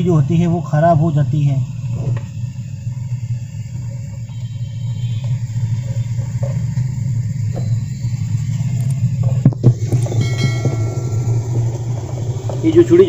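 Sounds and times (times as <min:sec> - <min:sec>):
low hum: 0:00.0 - 0:13.0
short high-pitched ring: 0:10.0 - 0:12.6.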